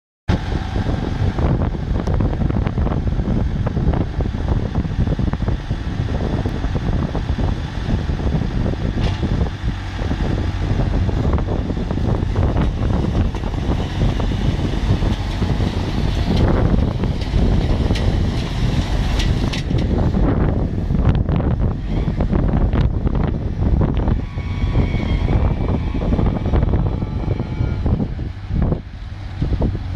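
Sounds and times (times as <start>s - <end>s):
tractor engine drone: 0.3s - 29.9s
harvester knocks and rattles: 8.9s - 9.9s, 11.0s - 21.2s.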